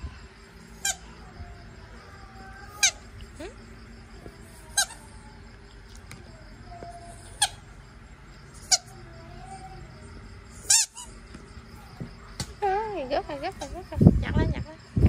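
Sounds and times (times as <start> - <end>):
rubber squeaky ball squeaking: 4.7 - 5.1, 10.6 - 11.2.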